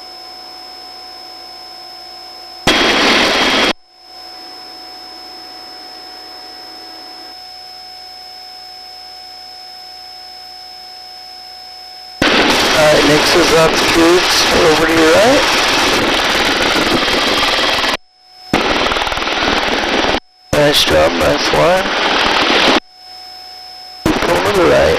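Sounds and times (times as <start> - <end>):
low electronic intercom hum: 0.0 - 24.9
helicopter engine and rotor noise: 12.2 - 23.2, 24.0 - 24.9.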